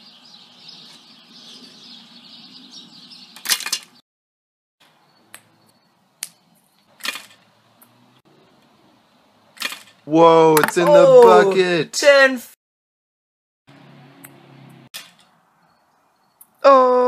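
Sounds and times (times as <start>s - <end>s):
catapult arm clacking: 7.0s - 7.4s, 9.6s - 10.0s.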